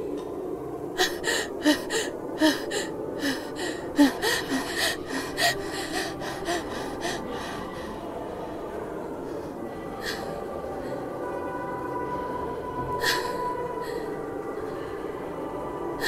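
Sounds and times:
steady low drone: 0.0 - 16.0
person gasping breathily: 1.0 - 8.4.

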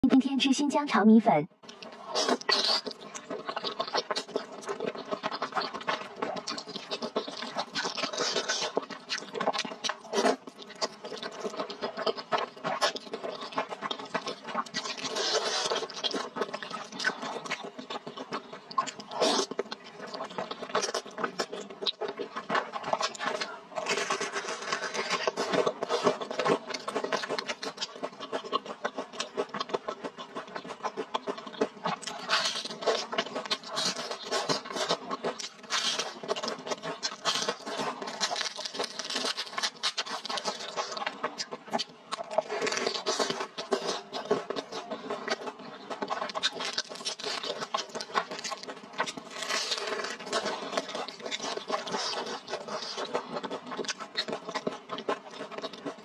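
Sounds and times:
wet slurping and chewing: 1.6 - 56.0.

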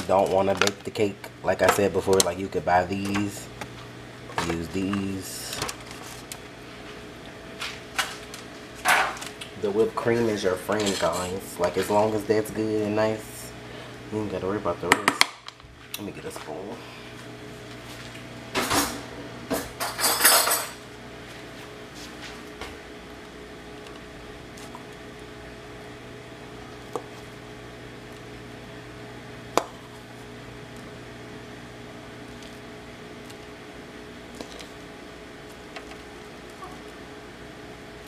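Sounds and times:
dishwasher hum: 0.0 - 38.0
metal cutlery clattering: 19.8 - 20.8.

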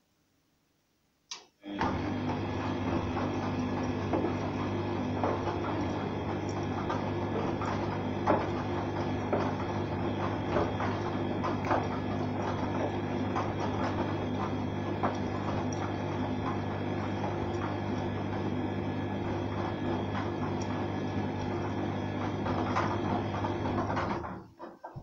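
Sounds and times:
washing machine motor hum: 1.6 - 25.0
laundry knocking in drum: 2.8 - 20.6.

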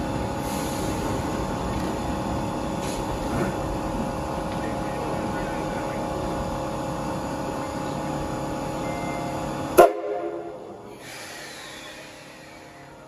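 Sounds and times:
steam locomotive hissing: 0.0 - 1.6, 10.8 - 13.0
loud steam blast: 9.8 - 12.7.

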